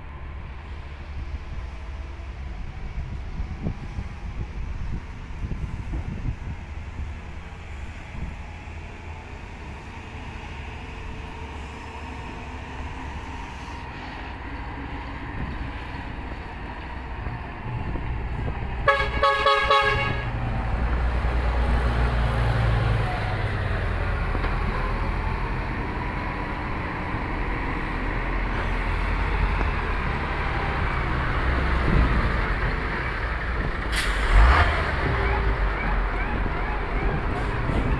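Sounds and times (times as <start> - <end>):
diesel truck engine rumbling: 0.0 - 37.9
truck horn: 18.8 - 20.4.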